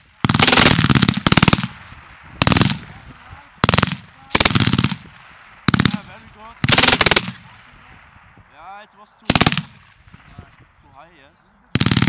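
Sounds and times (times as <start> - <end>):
machine gun firing bursts: 0.2 - 1.8, 2.4 - 2.9, 3.6 - 7.5, 9.3 - 9.8, 11.7 - 12.0.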